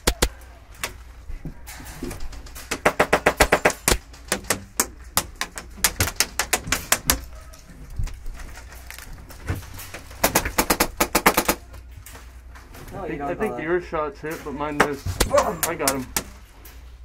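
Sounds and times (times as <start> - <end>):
airsoft rifles rapid firing: 2.7 - 4.5, 10.2 - 11.6.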